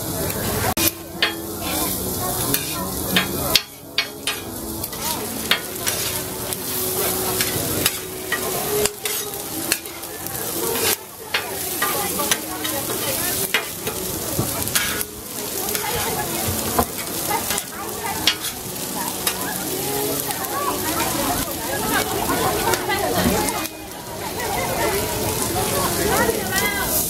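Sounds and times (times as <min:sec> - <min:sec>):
meat sizzling on a griddle: 0:00.0 - 0:27.0
metal spatula scraping griddle: 0:00.7 - 0:21.2.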